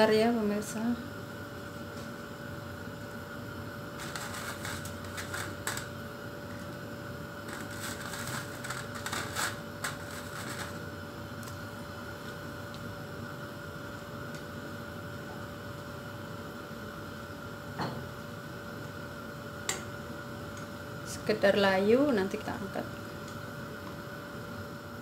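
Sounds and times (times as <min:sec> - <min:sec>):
steady hum: 0:00.0 - 0:25.0
vegetables crackling in oil: 0:04.0 - 0:06.8, 0:07.4 - 0:11.6.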